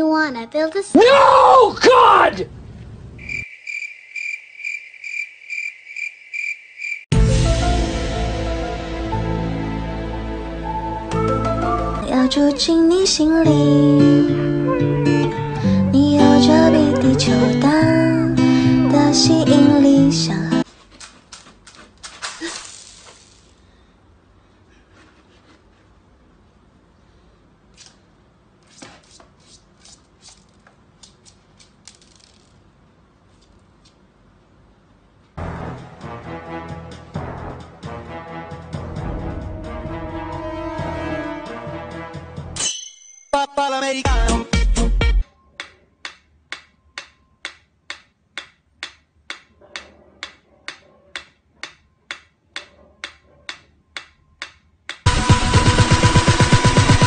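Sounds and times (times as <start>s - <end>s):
loud electronic music: 44.0s - 45.2s, 55.1s - 57.0s.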